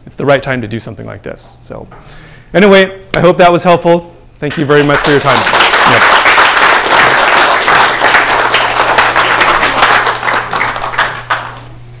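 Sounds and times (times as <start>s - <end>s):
audience applauding: 4.5s - 11.8s.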